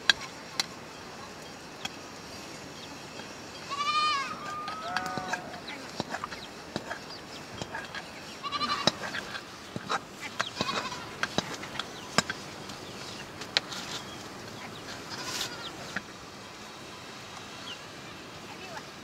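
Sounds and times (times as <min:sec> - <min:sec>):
goats bleating: 0:03.6 - 0:05.7, 0:08.4 - 0:09.5, 0:10.5 - 0:11.2, 0:15.1 - 0:15.8.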